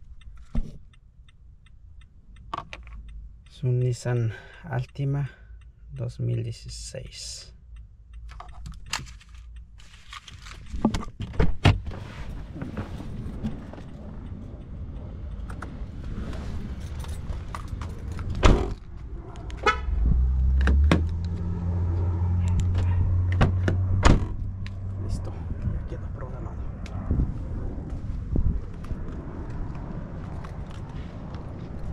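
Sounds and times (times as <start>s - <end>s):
steady low hum: 11.9s - 31.9s.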